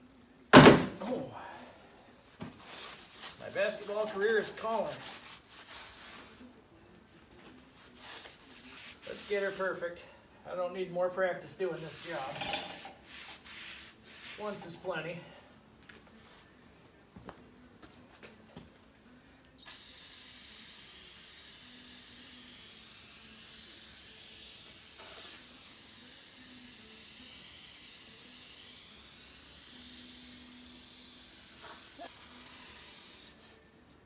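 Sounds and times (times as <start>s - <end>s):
aerosol can spraying hiss: 19.6s - 33.5s.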